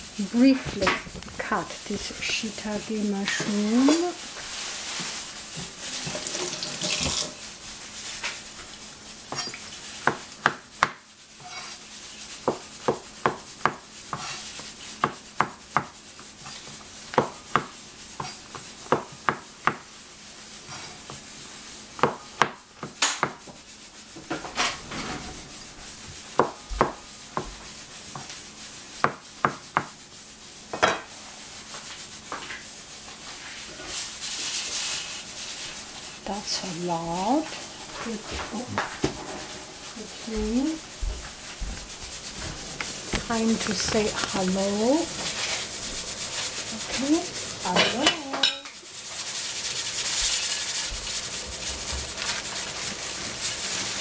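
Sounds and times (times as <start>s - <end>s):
rustling handling noise: 0.4s - 8.8s, 31.6s - 48.3s, 49.2s - 54.0s
knife chopping on cutting board: 9.3s - 11.7s, 12.4s - 19.9s, 22.0s - 23.6s, 26.3s - 28.3s, 29.0s - 30.0s.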